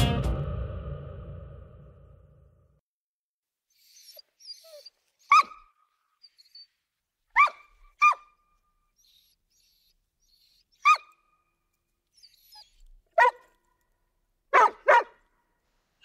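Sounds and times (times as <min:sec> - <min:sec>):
dog barking: 0:05.3 - 0:05.7, 0:07.4 - 0:08.4, 0:10.8 - 0:11.2, 0:13.2 - 0:13.6, 0:14.5 - 0:15.3.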